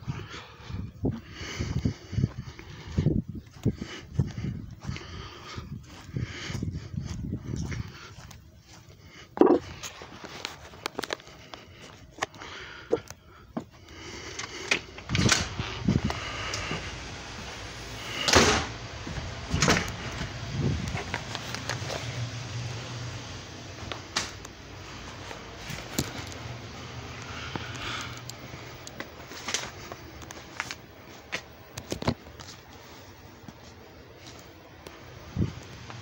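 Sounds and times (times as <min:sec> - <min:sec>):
low steady hum: 0:00.0 - 0:36.0
footsteps: 0:01.1 - 0:22.9, 0:23.7 - 0:36.0
door opening and closing: 0:14.6 - 0:20.4.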